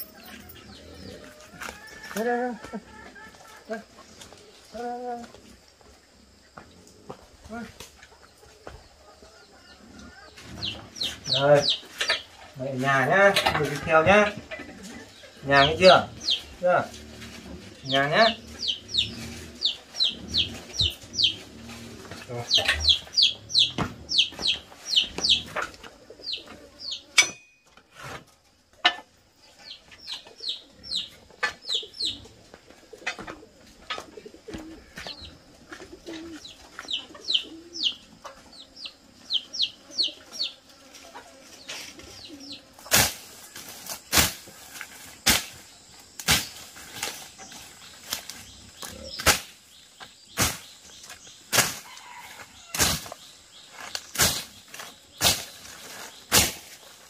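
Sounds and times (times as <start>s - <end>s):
birds chirping: 0.0s - 2.0s, 2.6s - 27.8s, 28.7s - 57.0s
machete chopping undergrowth: 42.9s - 47.4s, 48.0s - 49.6s, 50.3s - 51.9s, 52.7s - 56.9s.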